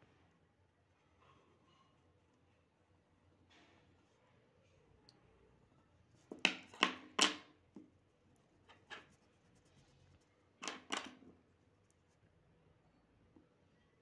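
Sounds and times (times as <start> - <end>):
drawing tools knocking on wooden desk: 6.3 - 7.5.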